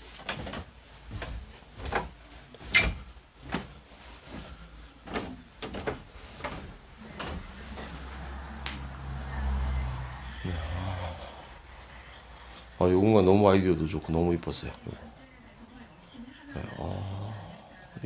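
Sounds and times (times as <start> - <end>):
footsteps on wooden stairs: 0.0 - 8.8.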